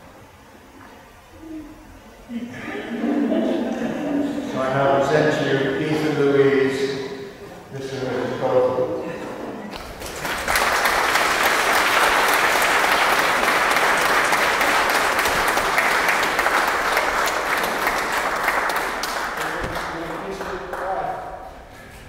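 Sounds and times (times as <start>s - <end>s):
crowd applauding: 9.7s - 21.5s.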